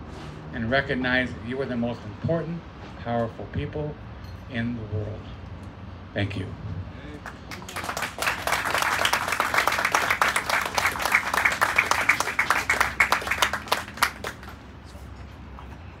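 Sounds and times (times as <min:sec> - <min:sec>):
audience applauding: 0:07.2 - 0:14.7.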